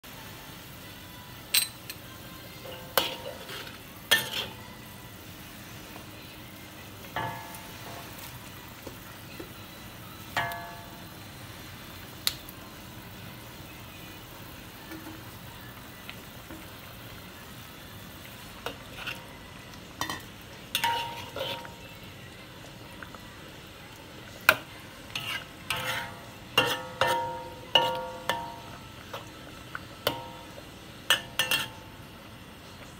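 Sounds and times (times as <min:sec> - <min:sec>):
sauce sizzling: 0:00.0 - 0:32.9
spatula scraping and clanking on wok: 0:02.6 - 0:04.7, 0:18.6 - 0:19.4, 0:20.0 - 0:21.8, 0:24.6 - 0:29.3, 0:31.1 - 0:31.9.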